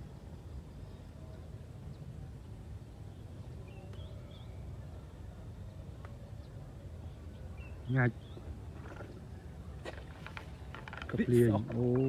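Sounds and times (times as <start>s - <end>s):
faint bird chirps: 0.0s - 9.5s.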